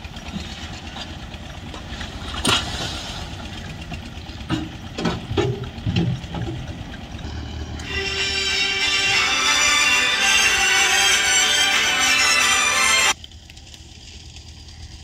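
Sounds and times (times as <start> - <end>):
engine running steadily: 0.0 - 15.0
knocks and clunks: 3.4 - 7.0.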